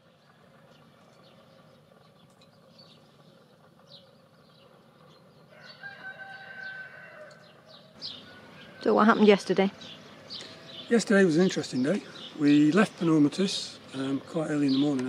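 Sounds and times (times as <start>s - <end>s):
small birds chirping: 0.0s - 15.0s
rooster crowing: 5.5s - 9.2s.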